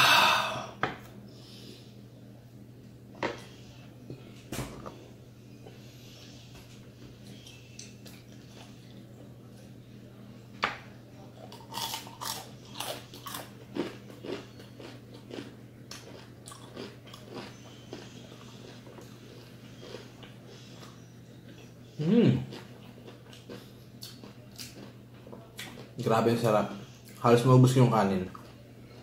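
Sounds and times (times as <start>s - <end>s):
steady low hum: 0.0s - 29.0s
crunching fried chicken skin: 11.5s - 18.0s.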